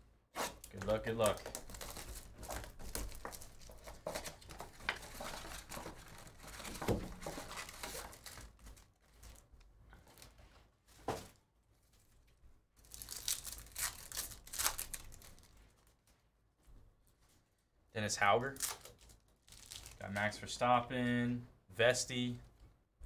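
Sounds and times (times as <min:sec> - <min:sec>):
wrapper tearing and crinkling: 0:00.7 - 0:09.5, 0:12.8 - 0:16.0, 0:18.6 - 0:20.1.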